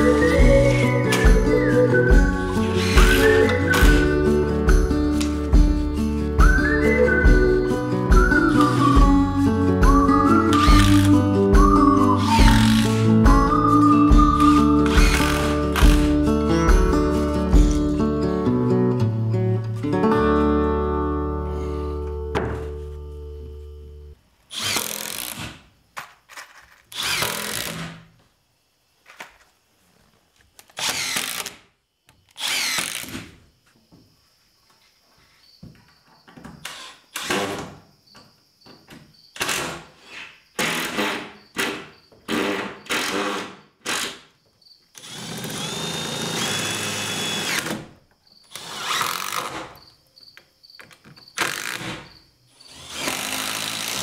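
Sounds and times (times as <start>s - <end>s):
cordless drill driving screws: 2.7s - 4.1s, 10.5s - 11.2s, 12.2s - 13.2s, 14.4s - 16.1s, 24.5s - 25.5s, 26.9s - 27.8s, 30.8s - 31.6s, 32.3s - 33.2s, 45.0s - 47.9s, 48.5s - 49.7s, 51.4s - 52.0s, 52.7s - 54.0s.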